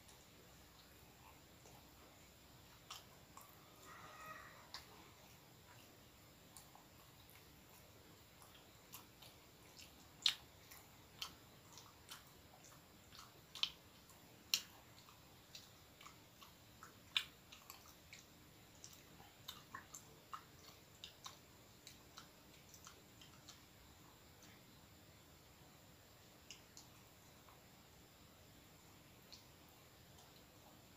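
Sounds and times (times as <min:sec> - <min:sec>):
person chewing: 0:00.0 - 0:24.6.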